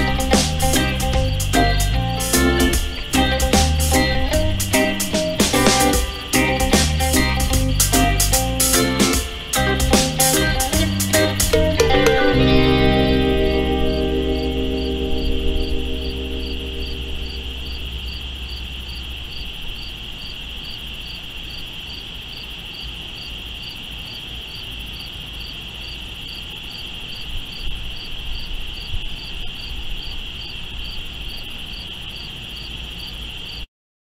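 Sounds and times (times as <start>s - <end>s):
cricket trill: 0.0s - 33.7s
insect chirping: 0.0s - 33.7s.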